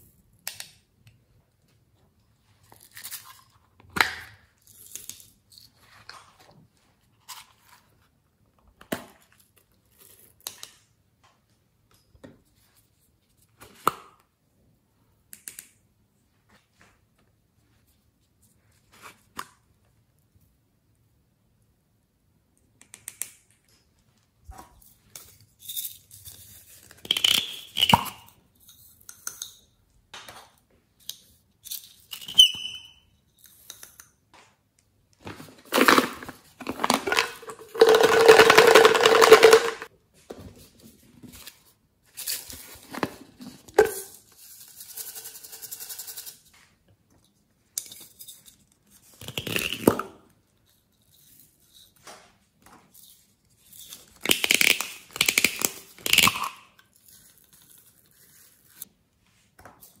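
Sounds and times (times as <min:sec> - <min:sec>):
plastic containers shaken: 0:35.3 - 0:39.9.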